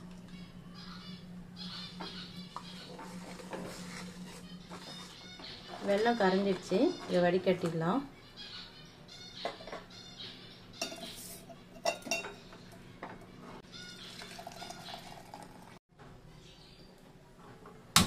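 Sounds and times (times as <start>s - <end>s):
metal utensils clinking on steel vessel: 10.8s - 12.4s.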